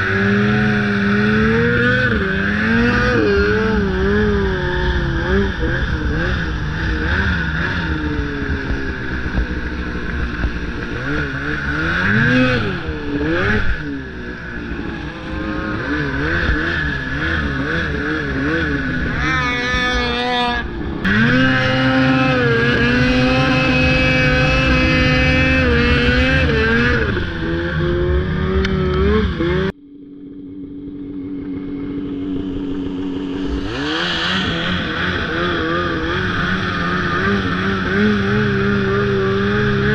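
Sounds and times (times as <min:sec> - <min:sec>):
snowmobile engine revving: 0:00.0 - 0:29.8, 0:31.0 - 0:39.9.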